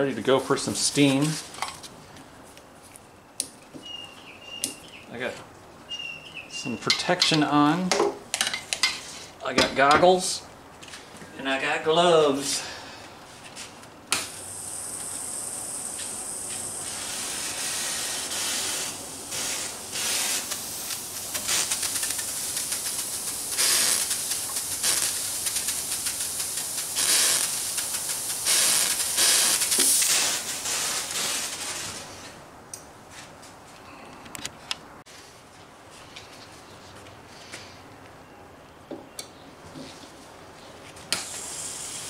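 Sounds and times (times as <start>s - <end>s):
steam hissing from a hose: 14.2s - 32.0s, 41.1s - 42.0s.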